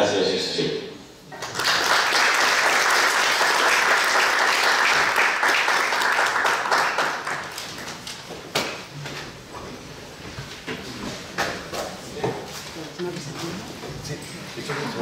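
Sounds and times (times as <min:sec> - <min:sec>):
audience applause: 0:01.4 - 0:08.0.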